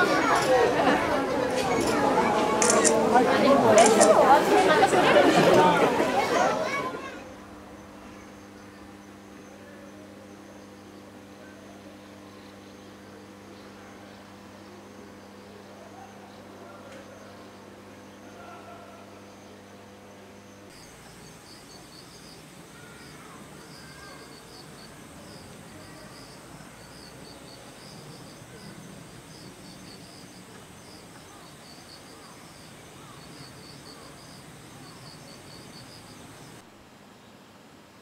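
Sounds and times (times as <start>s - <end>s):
steady hum: 0.0s - 38.0s
insects chirping: 7.1s - 38.0s
high-pitched insect trill: 20.7s - 36.6s.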